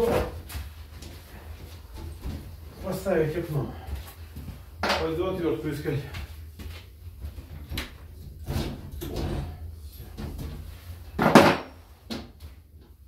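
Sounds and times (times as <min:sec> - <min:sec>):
objects knocking and clattering: 0:04.8 - 0:05.1, 0:07.3 - 0:12.4
loud clunk: 0:11.2 - 0:11.8.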